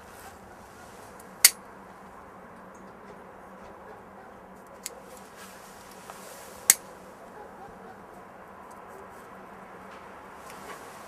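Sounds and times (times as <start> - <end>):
background hiss: 4.8 - 7.6, 9.0 - 11.0.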